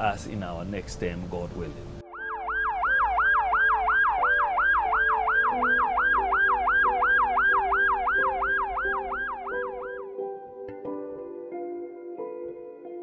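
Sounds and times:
background music with held chords: 0.0 - 13.0
ambulance siren yelping: 2.0 - 10.1.

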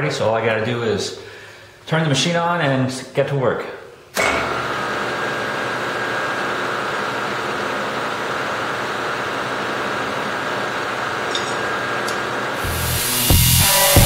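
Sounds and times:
milling machine cutting steel: 11.3 - 14.0.

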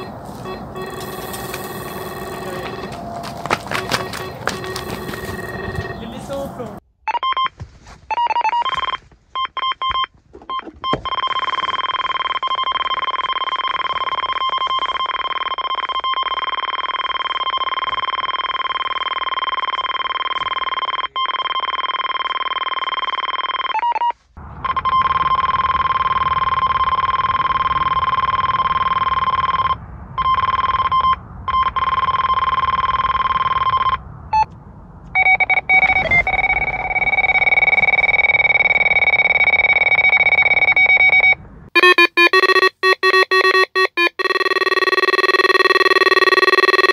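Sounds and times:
electronic bite alarm tone: 0.0 - 6.2, 35.2 - 46.9.

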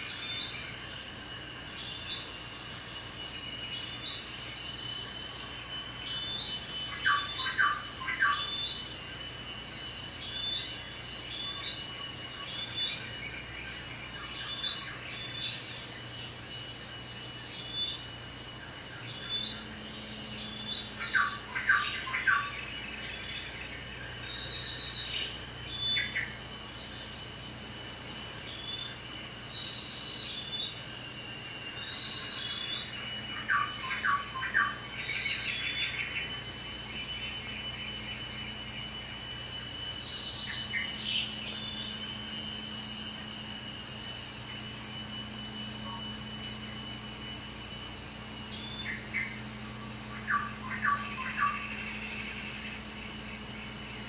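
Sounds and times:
insects chirping: 0.0 - 54.0.

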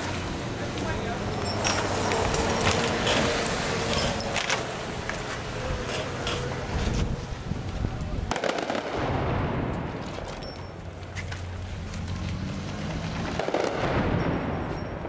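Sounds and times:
loud echoing gunshot: 8.3 - 10.0, 13.4 - 14.7
gunshots: 8.3 - 10.2, 13.2 - 15.0.

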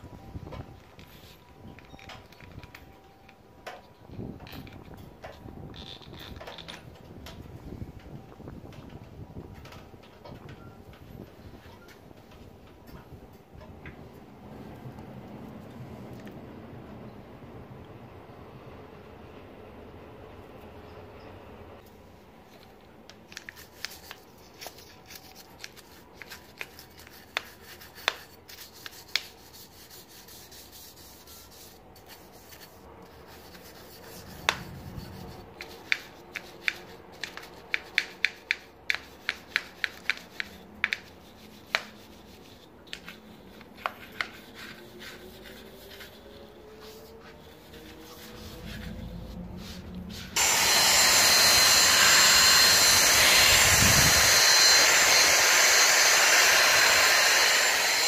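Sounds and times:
brush scrubbing scratchily: 23.6 - 38.0, 38.9 - 58.0
vacuum cleaner whining: 45.6 - 58.0.

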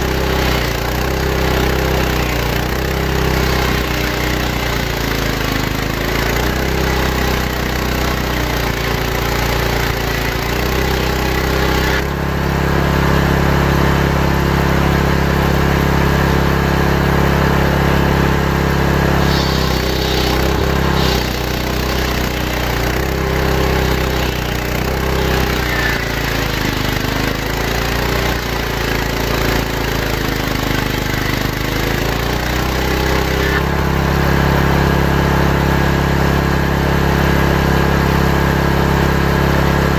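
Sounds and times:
table saw cutting wood: 0.0 - 12.3, 18.7 - 34.9.

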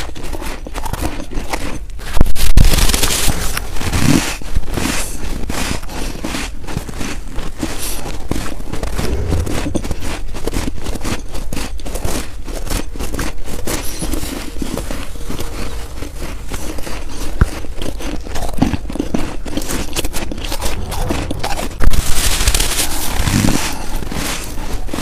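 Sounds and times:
snow being chewed: 0.0 - 25.0
snow rubbing on microphone: 20.5 - 24.5.

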